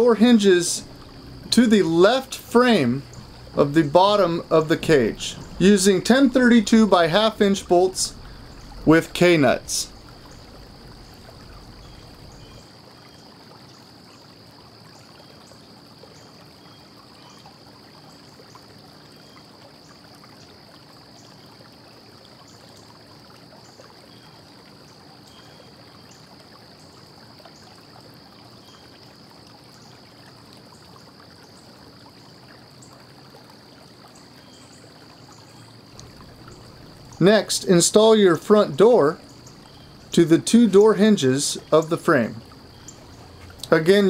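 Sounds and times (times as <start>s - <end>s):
room noise hiss: 0.0s - 44.0s
faint ticks: 3.0s - 12.6s, 34.0s - 37.8s, 39.2s - 40.2s, 41.6s - 44.0s.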